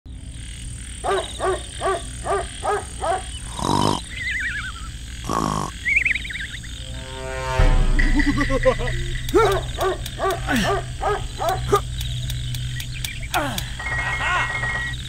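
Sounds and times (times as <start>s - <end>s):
animal-like calls: 1.0s - 6.8s
cartoon snoring with whistle: 3.4s - 6.2s
faint high whine: 4.1s - 10.2s, 13.2s - 15.0s.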